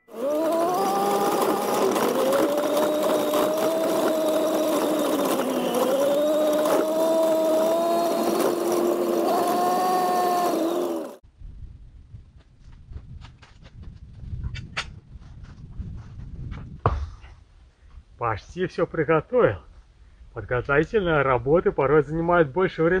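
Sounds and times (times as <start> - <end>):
vehicle engine running with whine: 0.0 - 11.2.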